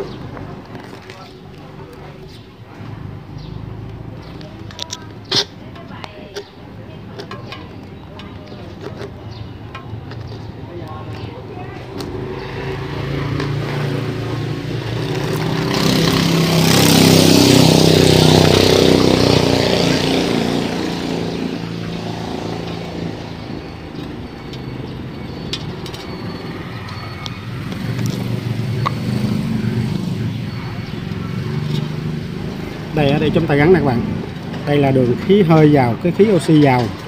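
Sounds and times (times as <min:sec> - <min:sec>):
vehicle engine passing by: 0:10.3 - 0:37.0.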